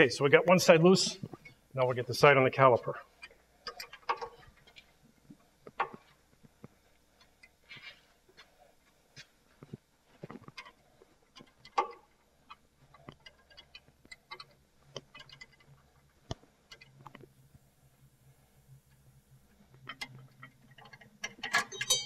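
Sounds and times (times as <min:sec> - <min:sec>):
metal clank: 0:21.3 - 0:22.0.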